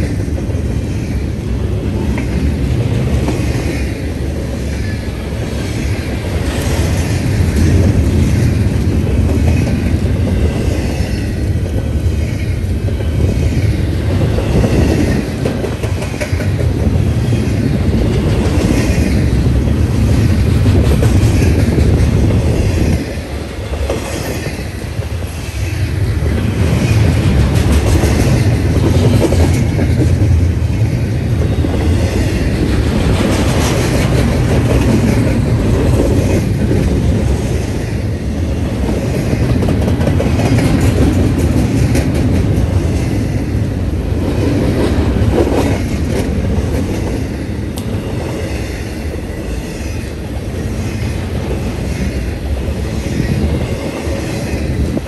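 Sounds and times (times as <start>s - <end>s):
freight train rumbling past: 0.0s - 55.0s
wheels clacking over rail joints: 1.9s - 37.4s, 38.7s - 55.0s.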